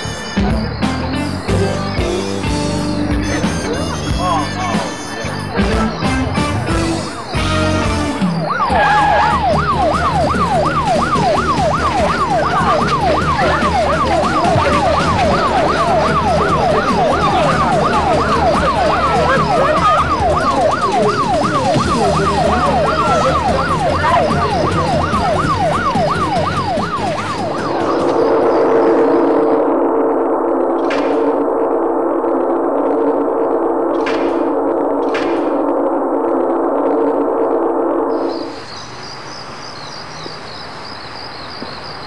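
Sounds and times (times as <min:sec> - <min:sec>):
siren yelping: 0:06.9 - 0:38.6.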